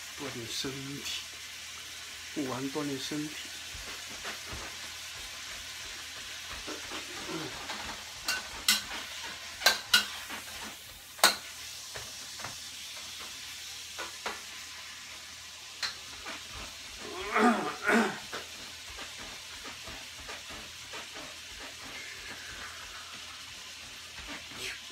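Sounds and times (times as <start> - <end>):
meat sizzling in a wok: 0.0 - 24.9
spatula striking wok: 8.2 - 14.5.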